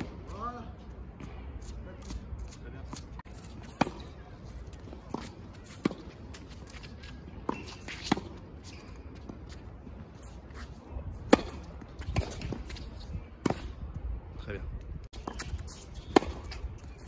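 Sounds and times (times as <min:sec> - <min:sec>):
racket striking tennis ball: 0:03.3 - 0:04.2, 0:04.8 - 0:09.4, 0:11.2 - 0:13.8, 0:15.2 - 0:17.0
tennis ball bouncing: 0:03.3 - 0:13.8, 0:15.2 - 0:17.0.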